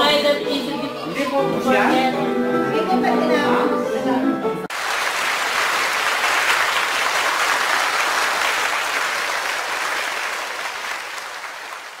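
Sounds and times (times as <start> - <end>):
crowd applause: 4.7 - 12.0.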